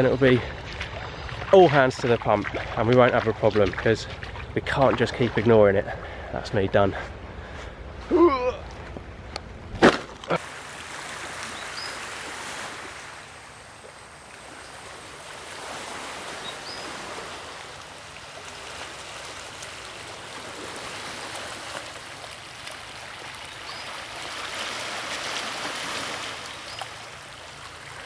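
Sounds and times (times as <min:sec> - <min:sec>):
small waves washing onto rocks: 0:09.8 - 0:28.0.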